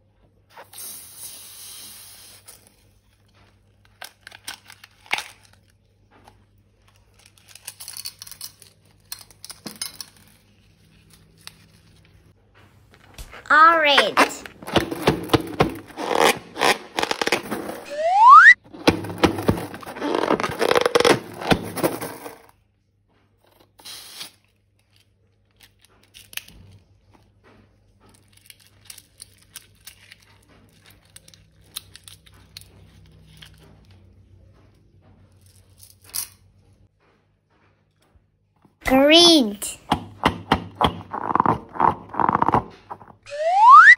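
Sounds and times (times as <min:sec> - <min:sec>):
balloon rubber squealing: 0:14.0 - 0:21.6, 0:40.8 - 0:43.9.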